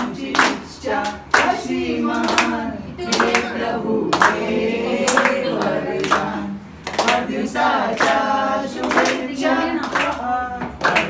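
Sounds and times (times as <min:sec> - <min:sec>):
group of voices singing: 0:00.0 - 0:11.0
hands clapping in time: 0:09.8 - 0:11.0.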